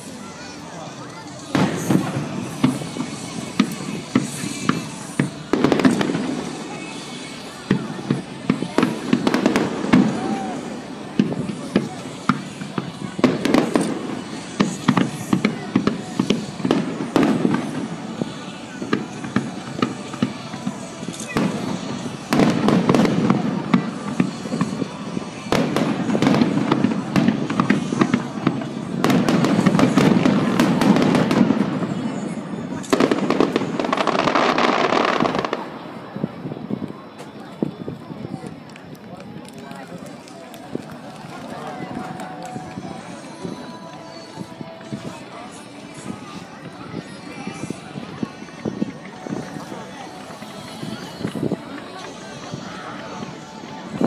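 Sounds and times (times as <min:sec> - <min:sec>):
fireworks bursting with bangs: 0:00.0 - 0:54.0
crackling firework bangs: 0:01.4 - 0:38.9.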